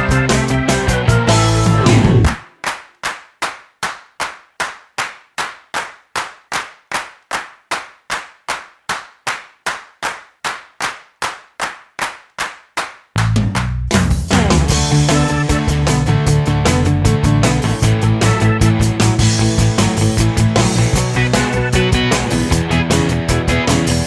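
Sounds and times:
music: 0.0s - 2.7s, 13.2s - 24.0s.

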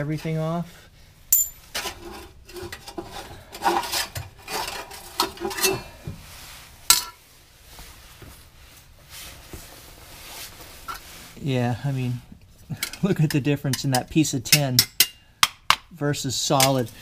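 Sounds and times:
metal scraping and rattling: 1.4s - 5.9s.

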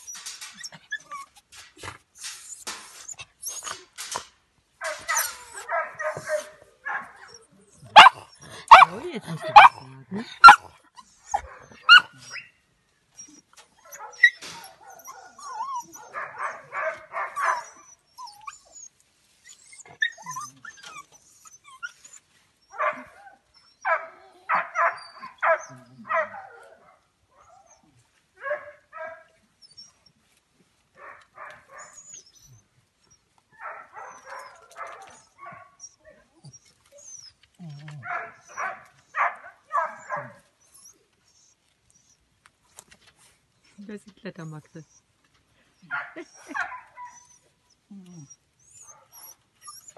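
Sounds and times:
dogs barking: 4.8s - 9.8s, 10.4s - 10.7s, 13.8s - 17.9s, 22.7s - 27.1s, 28.4s - 29.3s, 33.6s - 35.8s, 38.0s - 40.4s, 45.9s - 47.2s.

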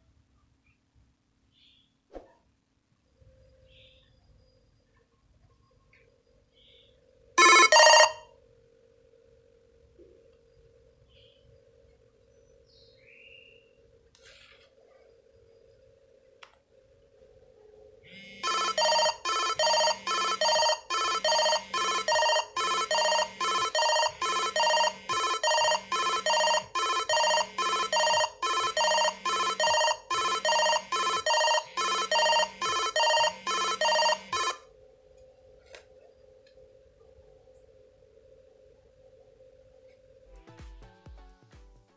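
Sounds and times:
phone ringtone: 7.4s - 8.3s, 18.1s - 34.6s.

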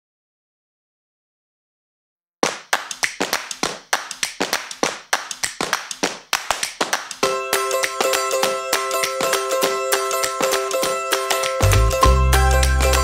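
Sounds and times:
rhythmic hand claps and taps: 2.4s - 13.0s
plucked string instrument: 7.2s - 13.0s.

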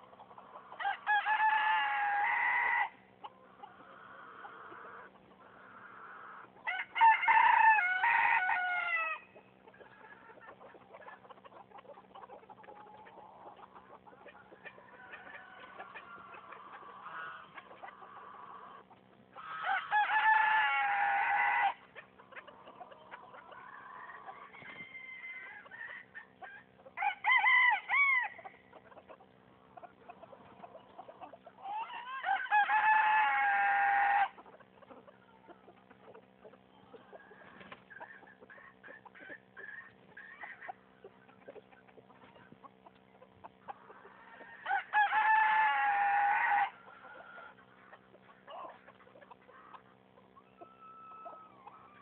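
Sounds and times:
chickens clucking: 0.0s - 52.0s
rooster crowing: 0.8s - 3.0s, 6.7s - 9.3s, 19.5s - 21.8s, 23.8s - 25.8s, 27.0s - 28.4s, 31.8s - 34.4s, 44.3s - 46.8s, 50.6s - 52.0s.

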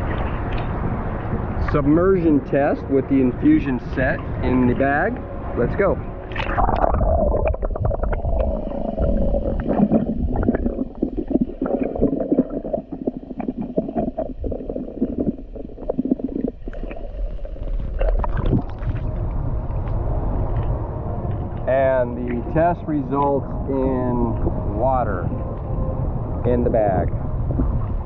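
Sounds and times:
underwater clicks and crackles: 0.0s - 1.8s, 6.3s - 21.7s
muffled underwater rumble: 0.0s - 28.0s.

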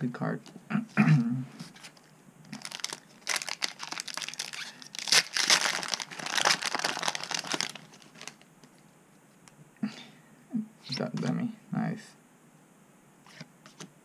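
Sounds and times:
foil wrapper crinkling: 1.8s - 8.8s.

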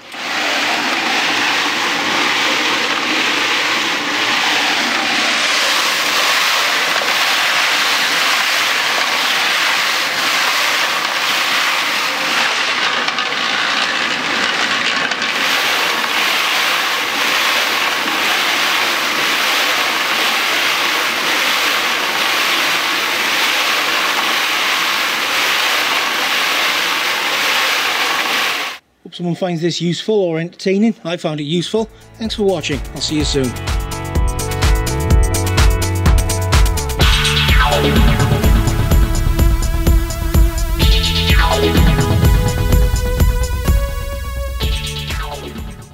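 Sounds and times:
stones rattling in metal drum: 0.1s - 28.6s.

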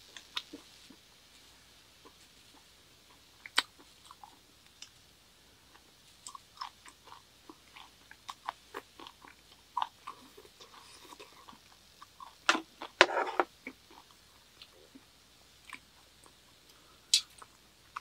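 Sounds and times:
person chewing wetly: 2.0s - 5.0s, 5.7s - 16.4s.

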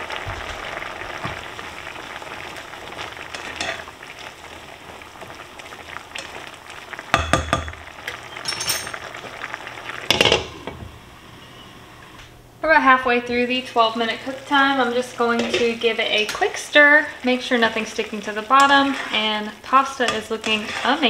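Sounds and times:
liquid sizzling and bubbling in pan: 0.0s - 21.0s
spatula scraping pan: 15.2s - 16.5s, 18.5s - 21.0s.

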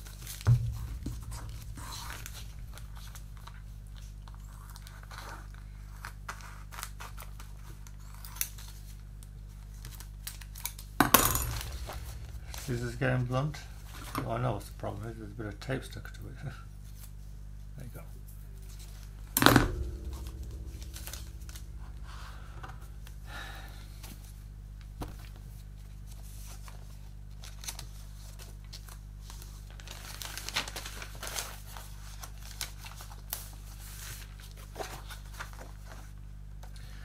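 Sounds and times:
sharp knock: 0.5s - 3.5s, 11.0s - 14.4s, 19.2s - 23.3s.

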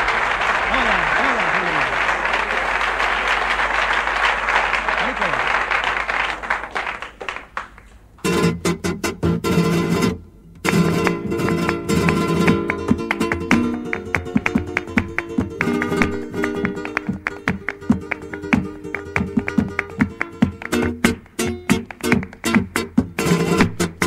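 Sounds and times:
flamenco guitar playing: 8.2s - 24.0s.

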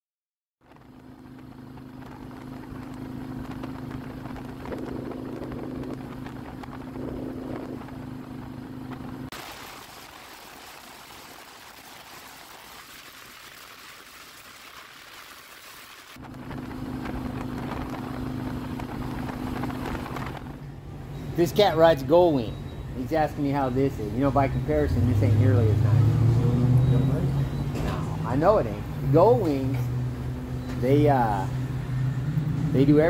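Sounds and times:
motorcycle engine humming: 0.6s - 9.4s, 16.1s - 33.0s
wind rush: 0.7s - 9.3s, 16.2s - 20.6s.

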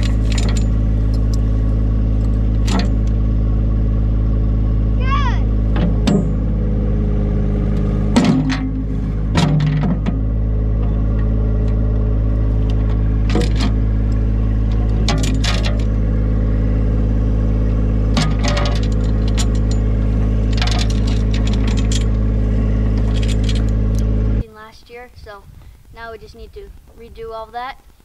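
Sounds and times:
steel chain clinking: 0.0s - 1.4s, 18.2s - 22.2s, 23.0s - 23.8s
tractor engine running: 0.0s - 28.0s.

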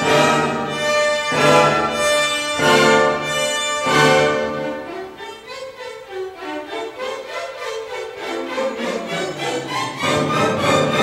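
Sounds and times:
orchestral music: 0.0s - 11.0s.

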